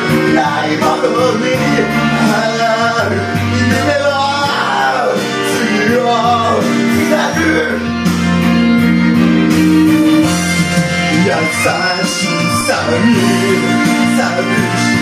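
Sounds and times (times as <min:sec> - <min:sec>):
man singing into microphone: 0:00.0 - 0:08.0, 0:11.0 - 0:15.0
karaoke backing music: 0:00.0 - 0:15.0.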